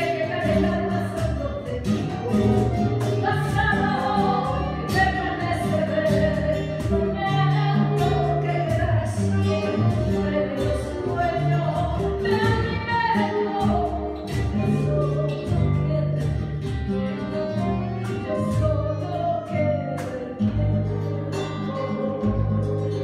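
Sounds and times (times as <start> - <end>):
acoustic guitar plucking: 0.0 - 23.0
person singing: 17.9 - 23.0.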